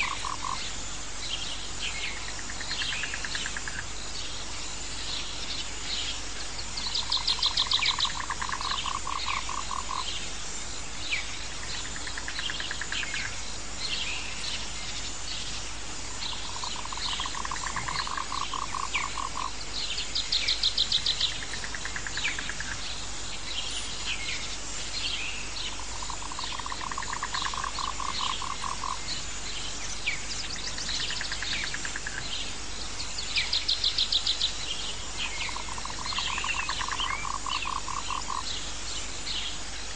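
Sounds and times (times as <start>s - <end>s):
pulsing trilling frog call: 0.0s - 0.6s, 6.9s - 10.1s, 16.2s - 19.6s, 25.7s - 29.1s, 35.4s - 38.5s
bird chirps: 0.0s - 10.2s, 11.0s - 39.6s.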